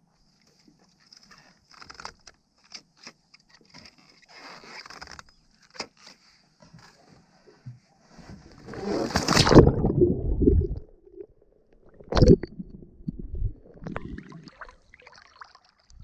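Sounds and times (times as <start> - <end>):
small underwater clicks and knocks: 0.2 - 7.9.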